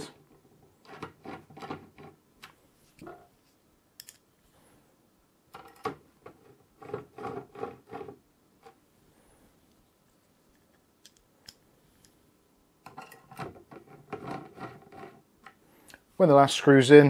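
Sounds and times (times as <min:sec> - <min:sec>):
metallic screw clicks and scrapes: 0:04.0 - 0:04.3.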